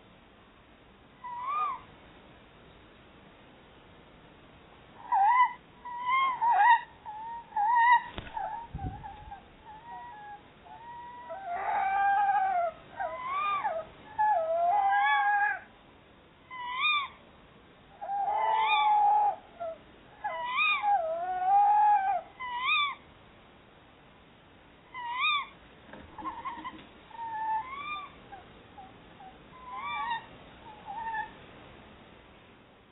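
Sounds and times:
owls calling: 0:01.2 - 0:01.9, 0:05.0 - 0:15.7, 0:16.5 - 0:17.2, 0:18.0 - 0:23.0, 0:24.9 - 0:25.6, 0:26.2 - 0:31.4
low bump: 0:08.2 - 0:09.4.

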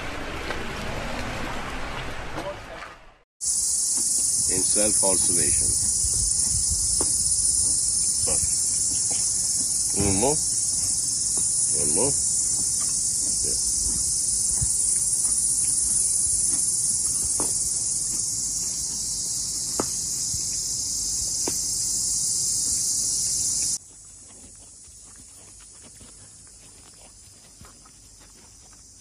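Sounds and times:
insects buzzing: 0:03.4 - 0:29.0.

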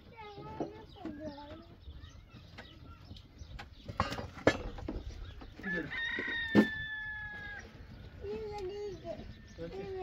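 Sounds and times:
rooster crowing: 0:05.6 - 0:07.6.

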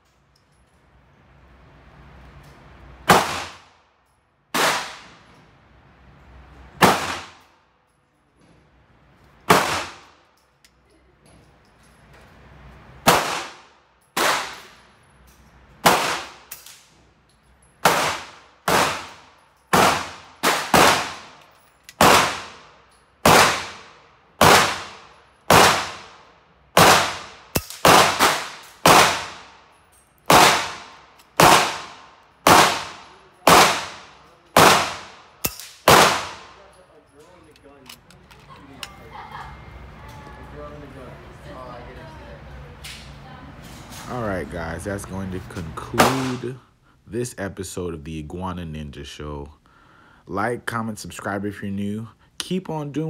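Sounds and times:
gunshots echoing indoors: 0:03.0 - 0:03.8, 0:04.5 - 0:05.4, 0:06.8 - 0:07.5, 0:09.4 - 0:10.3, 0:13.0 - 0:14.9, 0:15.8 - 0:16.7, 0:17.8 - 0:29.7, 0:30.3 - 0:36.8, 0:45.9 - 0:46.5.

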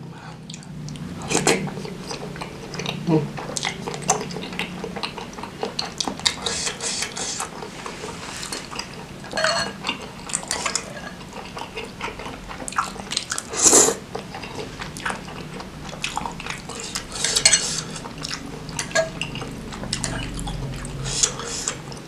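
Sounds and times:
loud slurp: 0:00.3 - 0:22.0
wet chewing: 0:00.3 - 0:22.0
fork scraping glass bowl: 0:06.3 - 0:11.2, 0:16.7 - 0:20.3.

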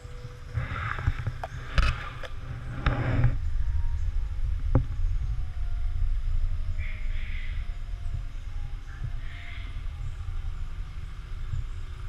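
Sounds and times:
rustling through leaves: 0:00.0 - 0:12.0
camera handling rumble: 0:00.7 - 0:03.4.

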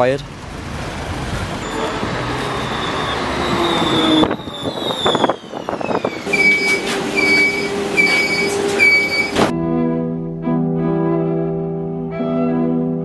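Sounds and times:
electric tram whining and rumbling: 0:00.0 - 0:09.5
warning beeper: 0:01.6 - 0:09.5.

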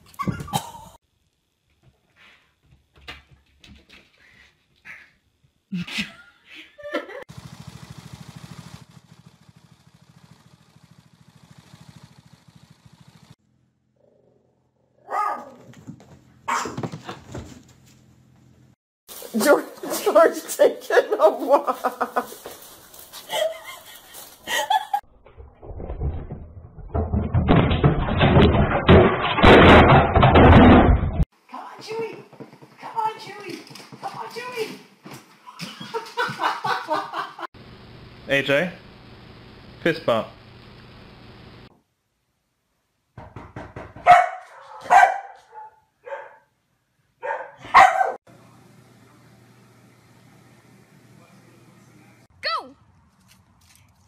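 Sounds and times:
dog barking: 0:15.0 - 0:15.7, 0:16.5 - 0:16.9, 0:44.0 - 0:46.5, 0:47.2 - 0:48.2
clattering rumbling noise: 0:25.0 - 0:31.2
television crashing onto floor: 0:25.9 - 0:31.2.

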